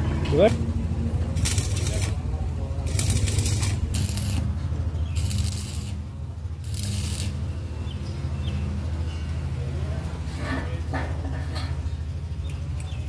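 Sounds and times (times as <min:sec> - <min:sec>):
welding arc crackling: 0:01.3 - 0:02.2, 0:02.8 - 0:04.5, 0:05.1 - 0:07.5.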